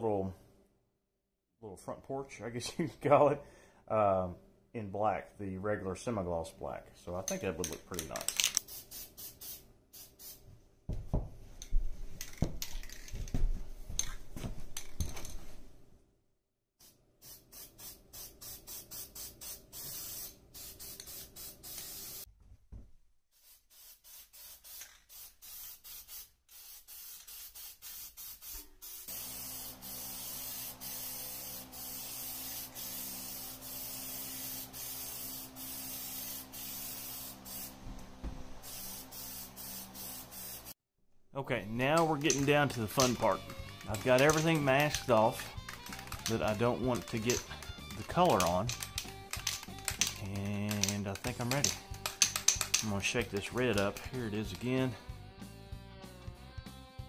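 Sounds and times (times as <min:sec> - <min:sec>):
aerosol spray can hissing: 0:08.5 - 0:10.4, 0:16.8 - 0:22.3, 0:23.3 - 0:37.8, 0:38.6 - 0:40.8, 0:42.2 - 0:54.6.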